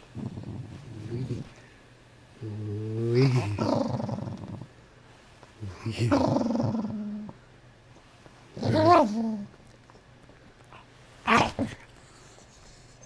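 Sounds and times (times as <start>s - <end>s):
dog growling: 0.0s - 1.6s, 2.4s - 4.7s, 5.7s - 7.4s, 8.5s - 9.6s
dog snarling: 0.2s - 1.5s, 3.1s - 4.7s.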